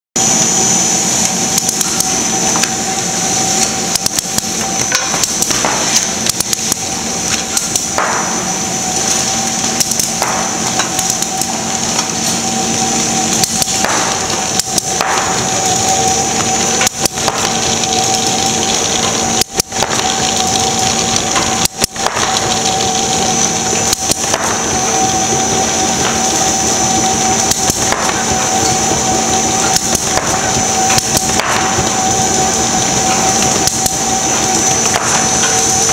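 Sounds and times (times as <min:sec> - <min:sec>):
machine hum and whine: 0:00.2 - 0:35.9
clicks and clatters of rollers: 0:03.9 - 0:08.4, 0:13.3 - 0:35.9.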